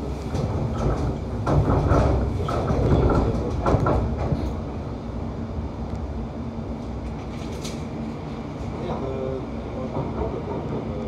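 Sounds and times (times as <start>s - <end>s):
wheels clattering over track: 0.0s - 4.7s
train wheels rumbling on rail: 0.0s - 11.0s.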